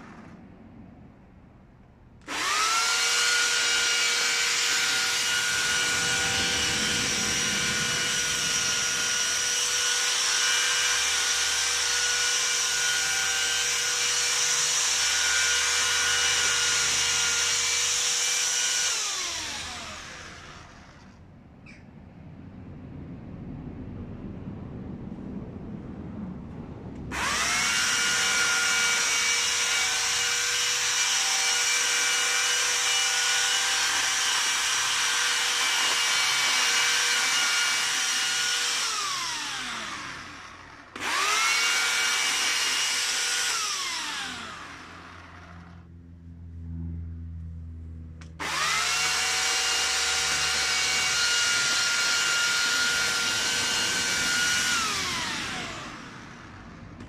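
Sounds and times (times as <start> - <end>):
hedge trimmer motor whine: 0.0 - 0.4, 2.2 - 21.2, 27.1 - 46.0, 48.2 - 57.0
low rumble: 4.2 - 11.2, 19.0 - 29.2, 44.1 - 48.7.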